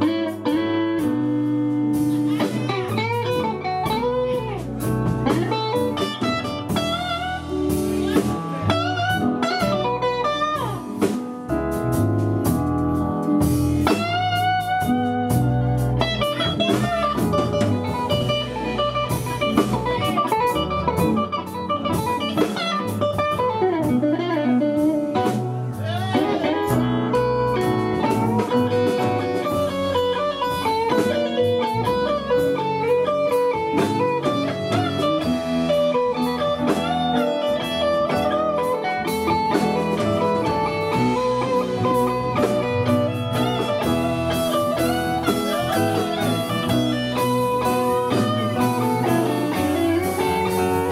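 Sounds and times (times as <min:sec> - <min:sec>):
electric guitar bending notes: 0:00.0 - 0:50.9
live blues band playing: 0:00.0 - 0:50.9
drum hits: 0:24.8 - 0:50.9.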